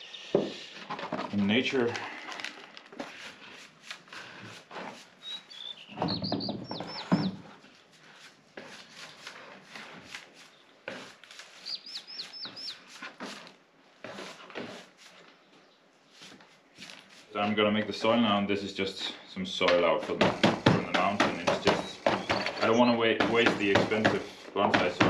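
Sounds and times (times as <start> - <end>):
songbird chirping: 0.0 - 0.7, 5.2 - 7.4, 11.5 - 12.9, 19.1 - 24.1.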